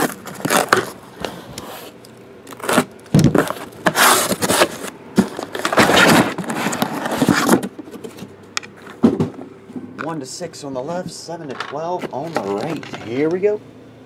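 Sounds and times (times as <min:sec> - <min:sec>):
boxes sliding out: 0:00.0 - 0:08.3
cardboard scraping and rustling: 0:00.0 - 0:09.3.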